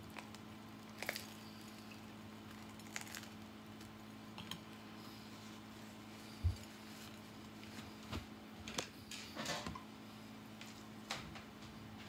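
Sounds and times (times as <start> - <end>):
steady low hum: 0.0 - 12.0
person chewing: 0.1 - 3.4.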